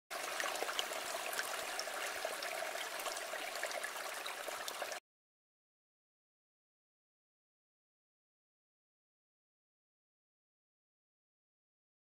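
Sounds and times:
stream flowing: 0.1 - 5.0.

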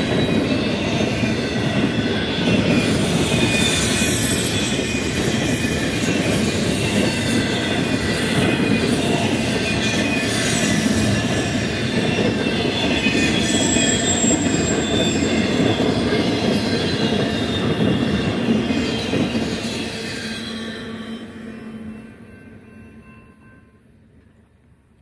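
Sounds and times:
high squealing wheels: 0.0 - 24.8
train wheels rolling on rails: 0.0 - 25.0.

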